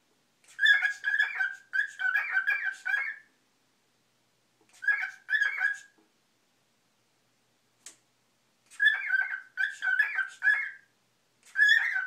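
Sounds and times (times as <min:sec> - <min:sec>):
cockatiel chattering: 0:00.5 - 0:03.3, 0:04.7 - 0:06.0, 0:08.7 - 0:10.8, 0:11.5 - 0:12.0.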